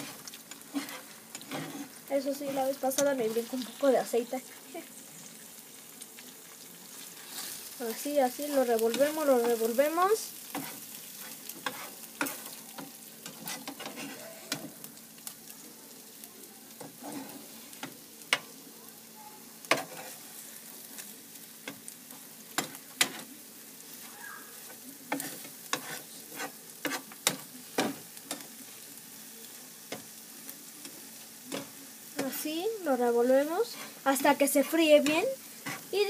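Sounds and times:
spatula scraping a pan: 0:00.0 - 0:03.8, 0:07.1 - 0:07.7, 0:10.4 - 0:14.8, 0:16.8 - 0:18.5, 0:19.6 - 0:20.6, 0:21.7 - 0:23.3, 0:23.9 - 0:28.5, 0:33.5 - 0:36.0
food sizzling in a pan: 0:00.0 - 0:36.0.

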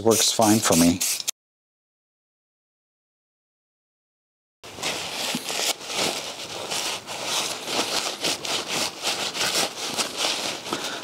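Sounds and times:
shop towel rubbing and crinkling: 0:04.6 - 0:11.0.

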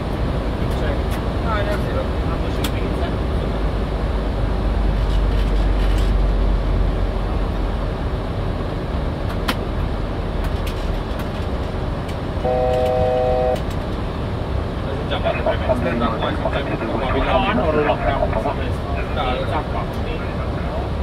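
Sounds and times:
cockpit airflow and engine noise: 0:00.0 - 0:21.0
steady electronic tone: 0:12.4 - 0:13.6.

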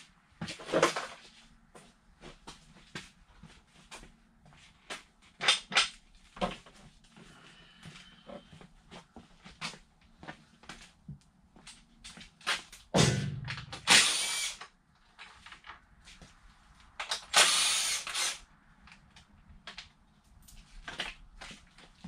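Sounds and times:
power tool running: 0:13.8 - 0:14.6, 0:17.3 - 0:18.4.

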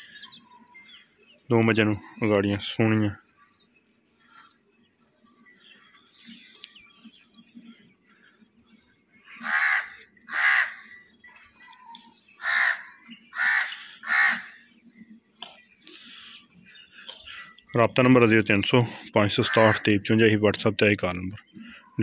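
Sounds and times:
crow cawing: 0:09.3 - 0:11.0, 0:12.4 - 0:14.6, 0:19.4 - 0:19.9.

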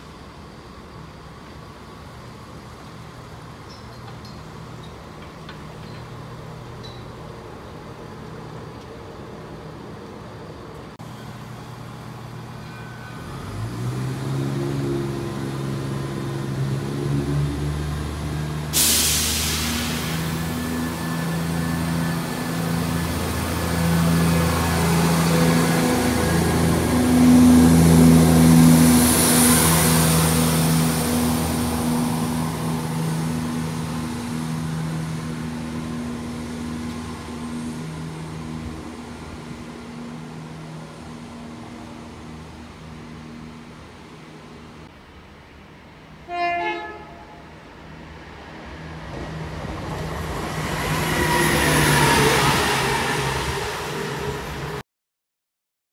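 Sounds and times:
diesel train engines revving: 0:00.0 - 0:54.8
hiss of air: 0:18.6 - 0:20.7.

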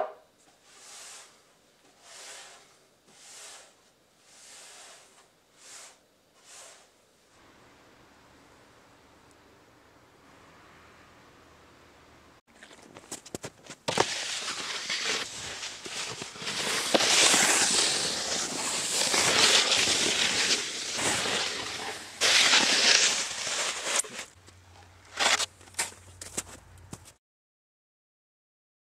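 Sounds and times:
snowskate scraping over snow: 0:00.6 - 0:06.9, 0:12.6 - 0:24.4, 0:25.1 - 0:27.1
crunches in snow: 0:12.5 - 0:24.4.

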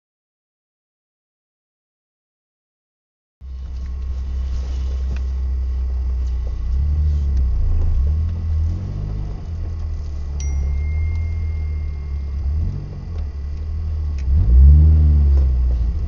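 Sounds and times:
car driving rumble: 0:03.4 - 0:16.0
thin high tone: 0:10.3 - 0:13.5.

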